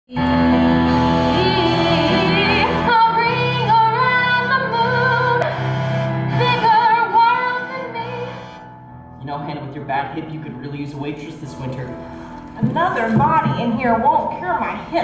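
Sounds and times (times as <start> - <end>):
woman singing with vibrato: 0.1 - 8.4
instrumental accompaniment: 0.1 - 15.0.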